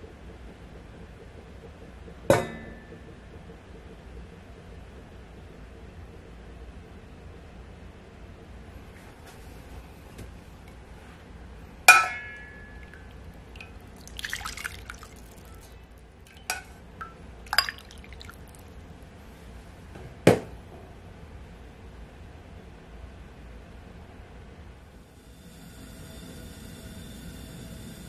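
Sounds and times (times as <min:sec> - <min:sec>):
ladle clinking on metal pot: 0:11.9 - 0:15.7, 0:16.3 - 0:18.4
liquid pouring splash: 0:11.9 - 0:18.8.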